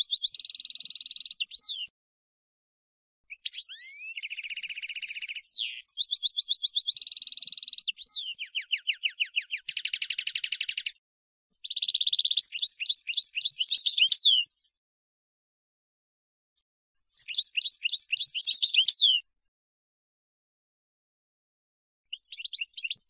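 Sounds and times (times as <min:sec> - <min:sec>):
goldfinch singing fast trills: 0:03.3 - 0:14.5, 0:17.2 - 0:19.2, 0:22.1 - 0:23.0.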